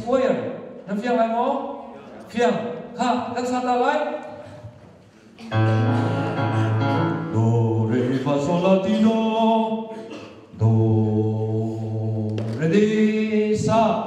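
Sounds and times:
voices singing long held notes: 5.5s - 8.4s.

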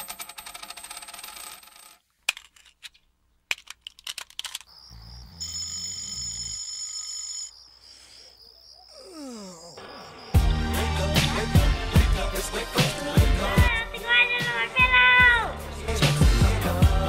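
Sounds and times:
electronic ringing tone: 5.2s - 7.8s.

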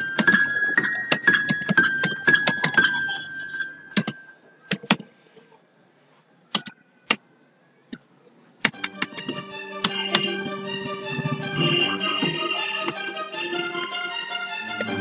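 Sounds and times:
computer keyboard typing: 0.0s - 3.0s, 3.9s - 5.1s.

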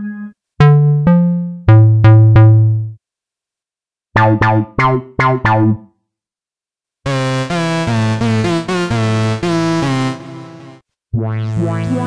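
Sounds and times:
plucked synth bass notes: 0.6s - 3.0s, 4.2s - 5.9s, 7.1s - 12.0s
short clipped synth bass notes: 4.2s - 5.8s
synthesizer organ chord: 7.1s - 12.0s.

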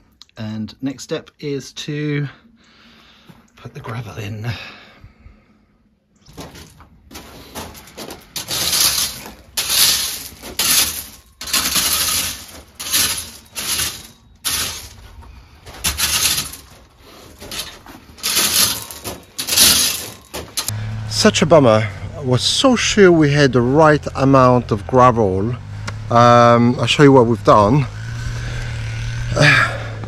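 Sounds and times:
gravel scraping and shifting: 6.3s - 30.0s.

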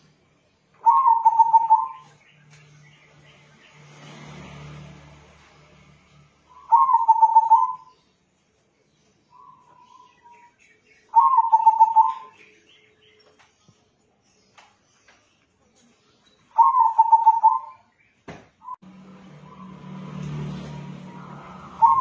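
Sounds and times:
dove cooing: 0.8s - 2.0s, 6.6s - 7.9s, 11.1s - 12.4s, 16.6s - 17.8s, 21.7s - 22.0s.

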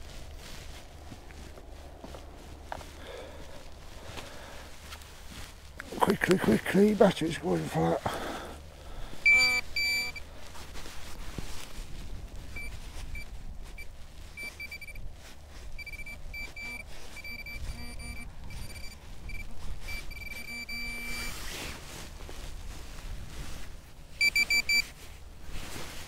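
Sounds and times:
pinpointer beeping high tone: 9.3s - 10.2s, 14.4s - 15.0s, 15.8s - 21.3s, 24.2s - 24.8s.

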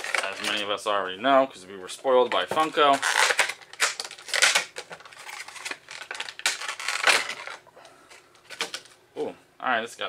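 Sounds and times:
plastic packaging crinkling: 0.0s - 0.8s, 2.2s - 9.0s.

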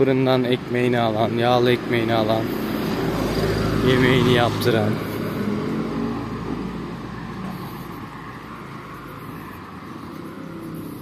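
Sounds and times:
car engine driving away: 2.4s - 11.0s.

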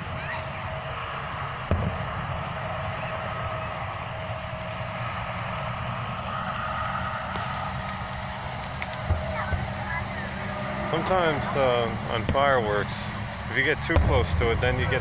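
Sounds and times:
faint high whine: 0.0s - 15.0s
low mechanical hum: 0.0s - 15.0s
firework bang: 1.5s - 4.8s, 7.2s - 8.0s, 8.7s - 9.7s, 12.1s - 12.6s, 13.8s - 14.9s.

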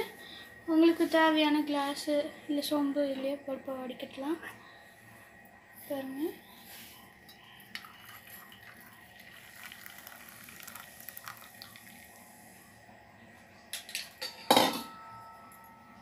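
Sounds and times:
tea trickling into cup: 7.2s - 12.4s.

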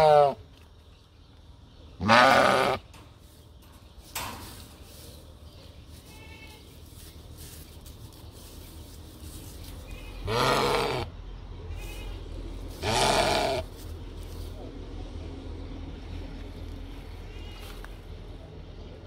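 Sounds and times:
sheep bleating: 0.0s - 0.4s, 2.0s - 2.8s, 6.1s - 6.6s, 9.9s - 11.1s, 12.8s - 13.7s.

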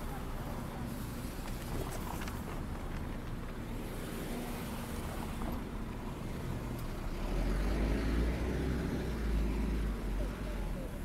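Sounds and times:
vehicle passing close by: 7.1s - 10.2s.

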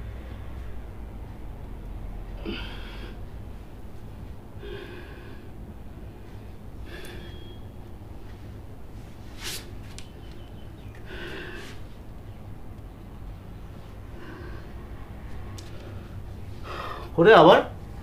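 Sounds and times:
steady low hum: 0.0s - 18.0s
man breathing hard: 2.4s - 3.3s, 4.6s - 7.6s, 10.9s - 12.0s, 14.0s - 17.2s.

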